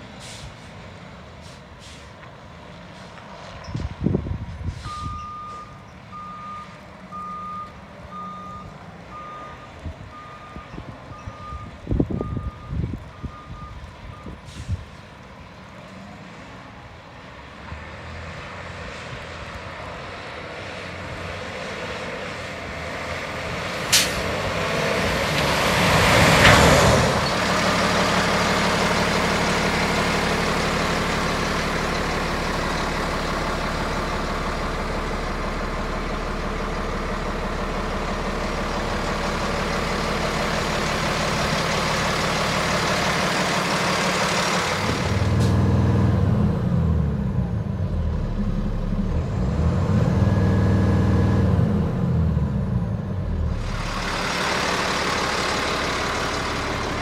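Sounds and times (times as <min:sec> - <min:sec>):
diesel truck engine: 0:00.0 - 0:57.0
air brakes hissing: 0:00.1 - 0:00.8, 0:01.4 - 0:02.2, 0:14.3 - 0:14.9, 0:23.8 - 0:24.3
truck reverse alarm beeping: 0:04.8 - 0:14.7.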